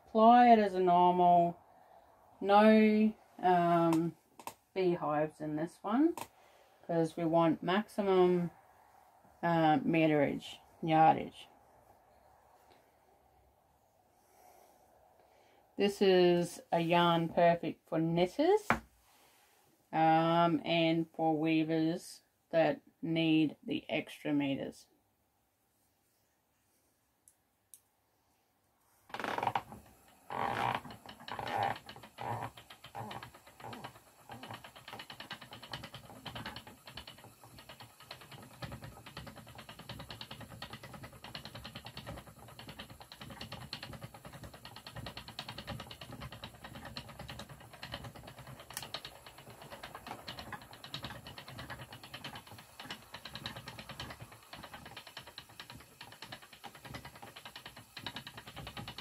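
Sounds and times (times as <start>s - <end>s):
spinning wheel clicking and clattering: 29.1s - 59.0s
spinning wheel knocks: 30.5s - 59.0s.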